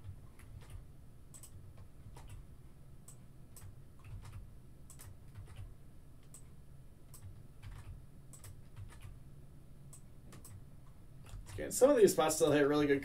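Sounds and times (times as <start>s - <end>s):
computer keyboard clicks: 0.0s - 2.4s, 3.1s - 6.5s, 7.1s - 9.2s, 9.9s - 10.6s, 11.2s - 11.7s
low steady hum: 0.0s - 13.0s
mouse clicks: 0.4s - 2.4s.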